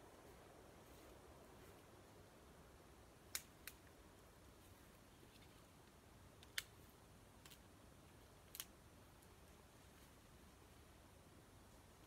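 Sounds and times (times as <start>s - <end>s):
dry wood snapping: 8.5s - 8.7s.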